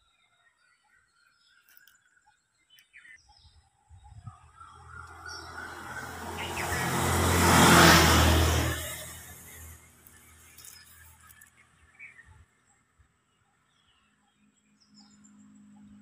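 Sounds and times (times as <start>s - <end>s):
vehicle passing by: 4.6s - 11.4s.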